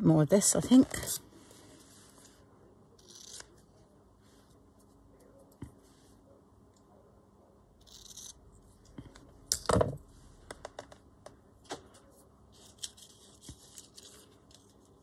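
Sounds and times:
paper rustling and tearing: 0:12.6 - 0:15.0.

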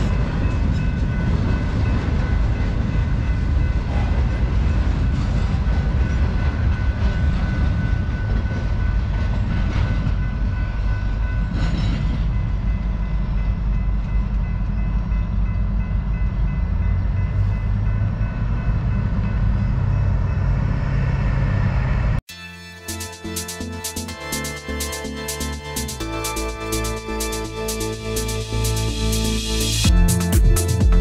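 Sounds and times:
train wheels rumbling on rail: 0:00.0 - 0:22.2.

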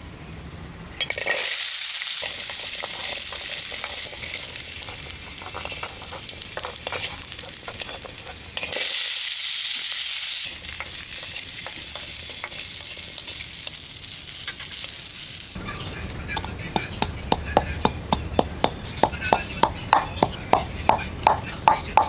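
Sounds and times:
garlic sizzling in a wok: 0:01.0 - 0:17.4
wooden spoon scraping metal wok: 0:02.2 - 0:17.3.

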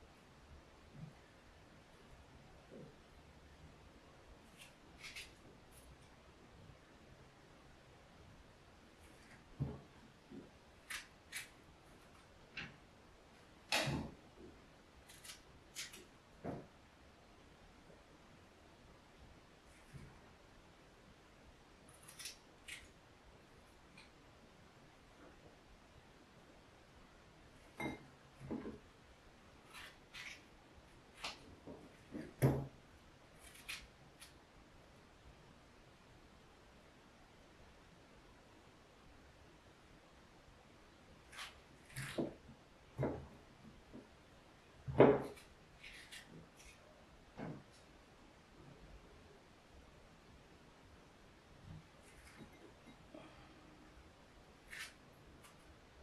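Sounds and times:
knife cutting strawberry: 0:04.4 - 0:06.1, 0:10.8 - 0:12.8, 0:15.0 - 0:16.7, 0:21.9 - 0:23.0, 0:29.6 - 0:34.4, 0:41.2 - 0:42.4, 0:44.9 - 0:46.8, 0:52.0 - 0:53.0, 0:54.6 - 0:55.7.

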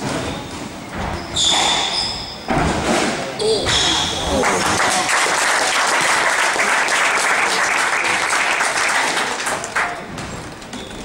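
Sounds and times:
audience applauding: 0:04.3 - 0:10.1.

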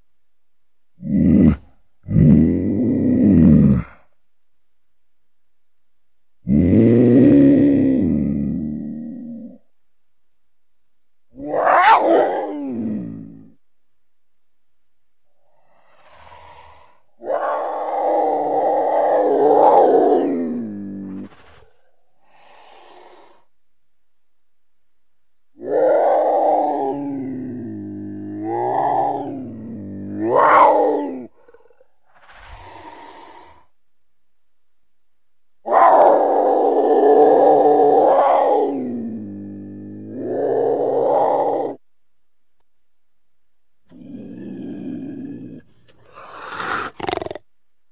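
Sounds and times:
mountain lion calling: 0:11.4 - 0:13.2
cougar yowling: 0:11.4 - 0:13.5, 0:16.7 - 0:21.4, 0:25.6 - 0:31.8, 0:35.7 - 0:41.8
faint breathy sound: 0:15.2 - 0:17.2, 0:20.4 - 0:23.7, 0:31.2 - 0:33.8, 0:43.9 - 0:47.1.

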